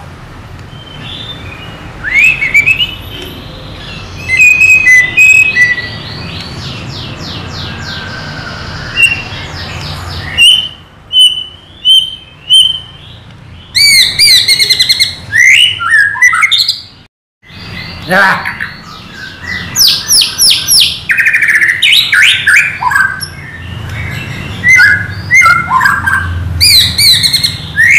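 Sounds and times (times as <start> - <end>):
bird singing whistles and trills: 0.7 - 27.9.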